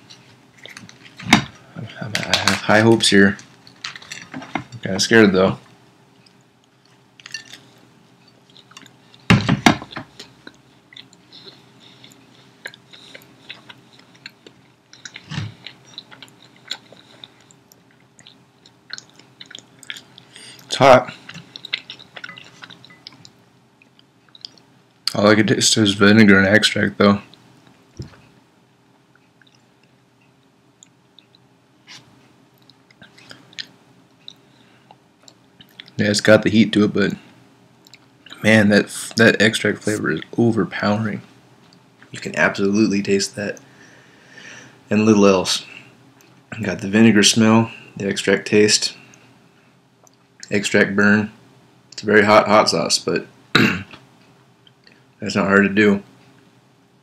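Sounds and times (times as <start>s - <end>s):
chewing with crunching clicks: 6.2s - 9.3s, 9.9s - 24.7s, 29.1s - 36.0s, 37.8s - 38.4s, 50.0s - 50.6s.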